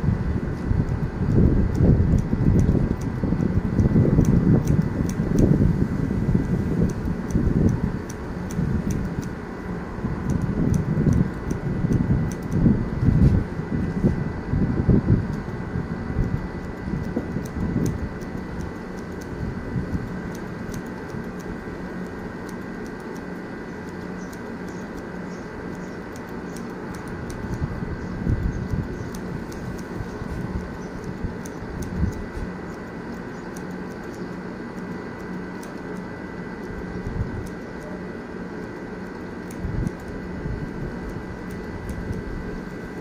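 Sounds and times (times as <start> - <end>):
steady background hum: 0.0 - 43.0
scissors snipping hair: 0.2 - 14.2, 14.8 - 43.0.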